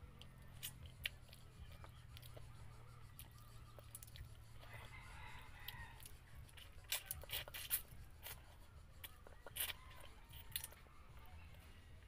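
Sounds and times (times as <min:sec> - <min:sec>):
chewing clicks: 0:00.1 - 0:08.4, 0:09.0 - 0:10.9
lip smacks while eating: 0:00.2 - 0:04.8, 0:05.5 - 0:10.9.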